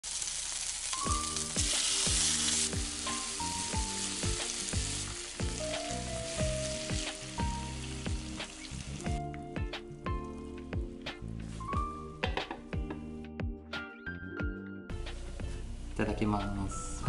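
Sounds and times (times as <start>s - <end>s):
food sizzling in a frying pan: 0.0s - 9.3s
background music with a beat: 1.0s - 15.8s.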